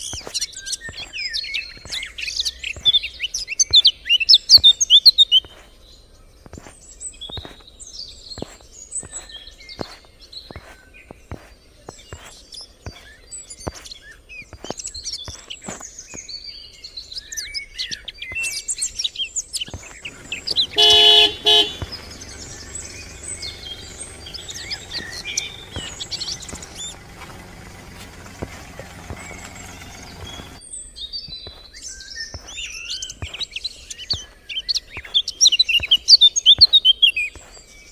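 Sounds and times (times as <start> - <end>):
footsteps tapping: 0.0 - 2.1, 6.4 - 7.6, 8.4 - 13.9, 19.7 - 30.6
birds chirping: 0.0 - 37.9
vehicle engine: 19.9 - 30.6
car horn honks: 20.0 - 30.6.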